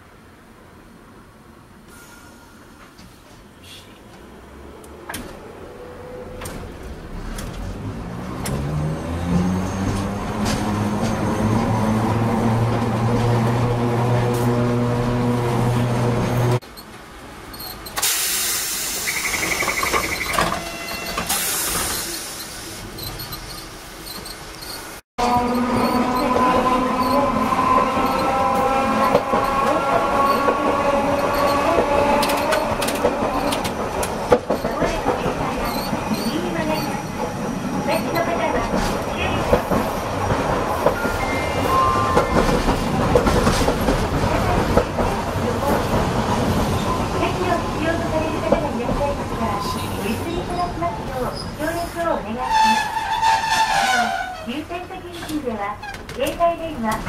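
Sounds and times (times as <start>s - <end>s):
tram wheels rumbling on rail: 2.8s - 57.0s
pneumatic door hissing: 17.7s - 25.0s.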